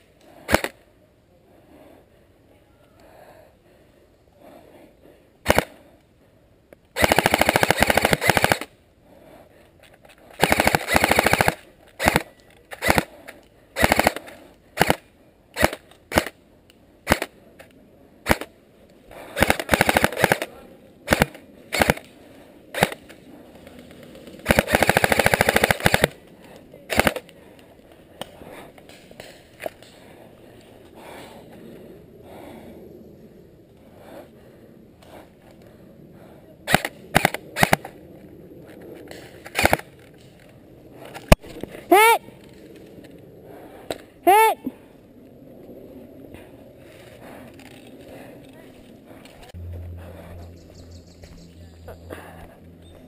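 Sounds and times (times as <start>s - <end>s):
airsoft rifle bursts: 7.0s - 8.7s, 10.4s - 13.1s, 13.8s - 15.0s, 19.4s - 20.5s, 21.1s - 22.0s, 24.4s - 26.2s, 26.9s - 27.2s.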